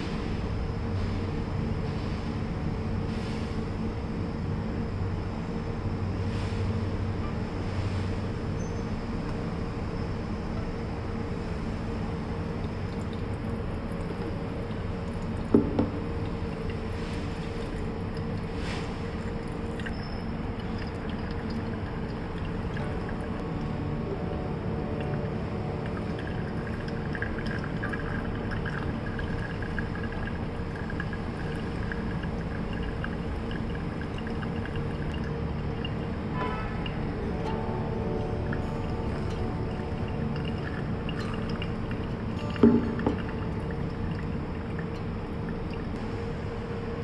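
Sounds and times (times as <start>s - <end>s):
coffee dripping through filter: 10.8s - 46.0s
water pouring onto coffee grounds: 11.6s - 46.0s.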